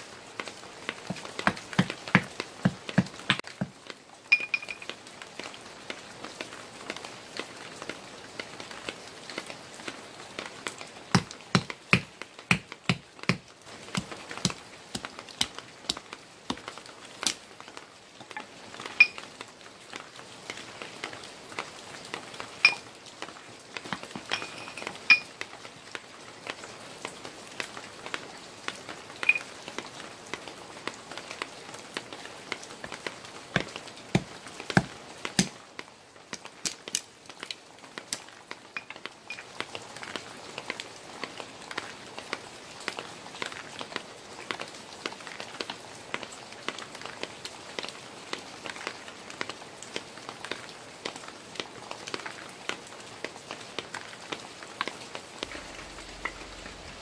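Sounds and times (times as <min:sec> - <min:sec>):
stone striking wood: 0:01.1 - 0:03.7, 0:11.2 - 0:17.4, 0:33.6 - 0:35.5
split wood clinking: 0:04.3 - 0:04.9.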